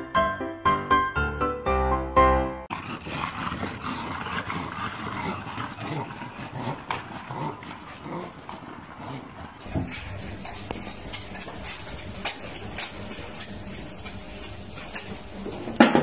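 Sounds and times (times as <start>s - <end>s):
dogs making sounds: 2.7s - 16.0s.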